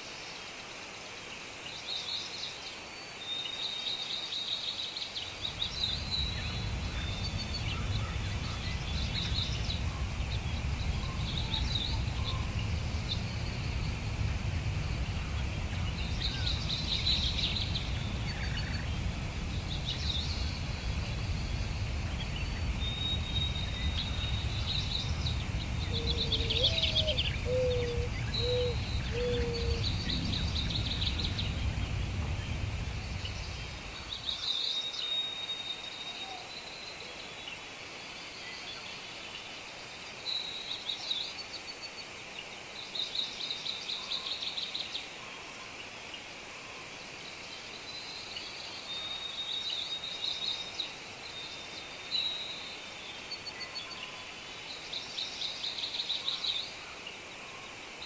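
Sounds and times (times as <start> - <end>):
songbirds chirping and trilling: 1.2 - 58.0
low steady rumble: 5.3 - 34.4
run of lower notes: 5.4 - 34.3.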